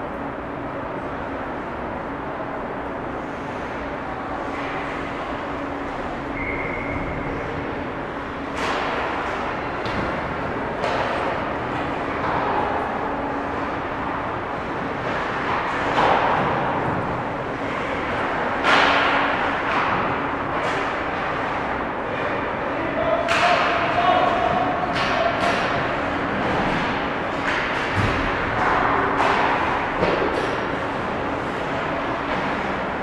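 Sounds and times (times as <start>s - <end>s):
steady low hum: 0.0s - 33.0s
distant hockey play: 6.4s - 14.0s, 14.6s - 33.0s.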